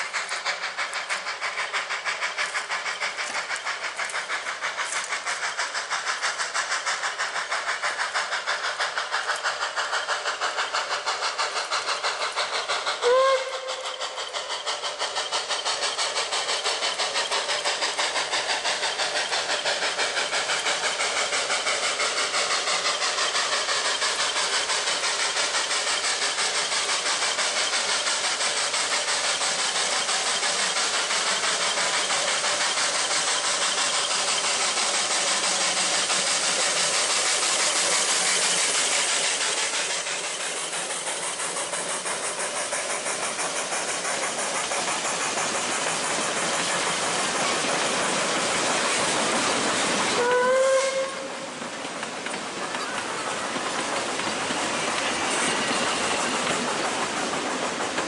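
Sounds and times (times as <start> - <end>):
steam locomotive exhaust beats: 0.0 - 58.0
steam whistle: 13.0 - 13.8, 50.2 - 51.5.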